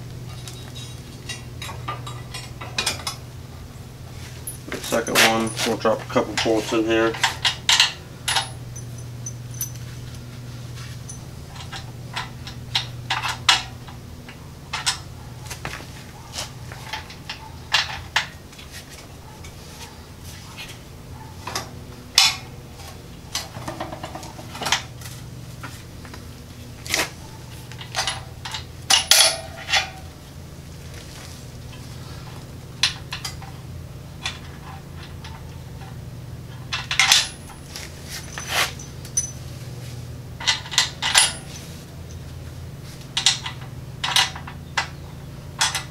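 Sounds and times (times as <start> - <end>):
steady low hum: 0.0 - 45.9
tools clinking on steel: 0.3 - 3.2, 4.5 - 10.2, 27.7 - 30.1, 36.7 - 39.5, 40.4 - 42.2.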